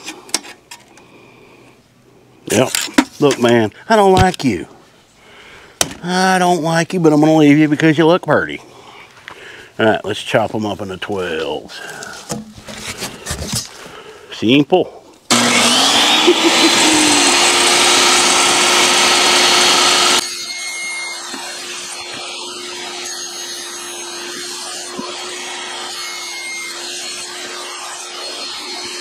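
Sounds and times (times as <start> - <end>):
table saw running with whine: 15.3 - 29.0.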